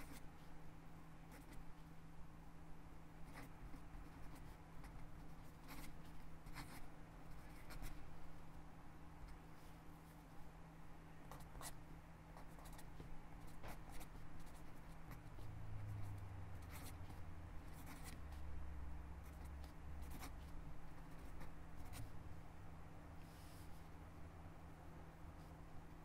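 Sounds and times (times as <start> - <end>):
faint low hum: 0.0 - 26.0
pen scratching on paper: 1.3 - 1.6, 3.2 - 8.0, 12.4 - 18.4, 19.2 - 22.1.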